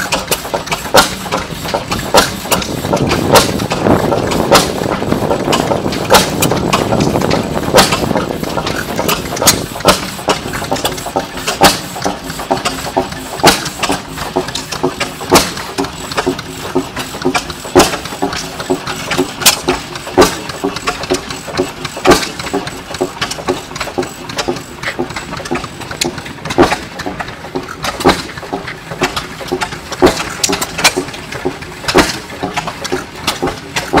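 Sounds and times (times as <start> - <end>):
engines firing quickly: 0.0 - 14.0
gas engine exhaust bangs: 0.0 - 34.0.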